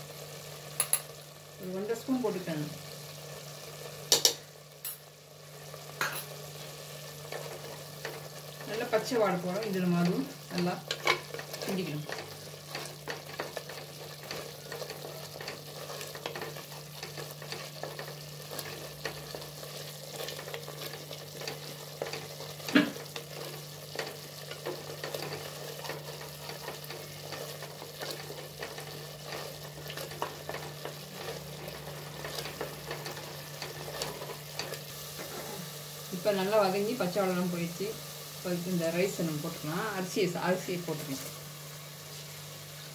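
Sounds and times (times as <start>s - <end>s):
masala sizzling in oil: 0.0s - 42.9s
wooden spatula scraping pot: 9.6s - 35.7s.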